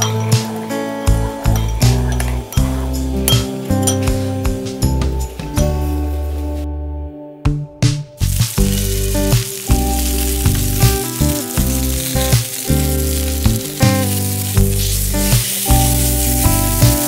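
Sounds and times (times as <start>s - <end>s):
background music with steady beat: 0.0s - 17.0s
steak sizzling on grill pan: 8.2s - 17.0s.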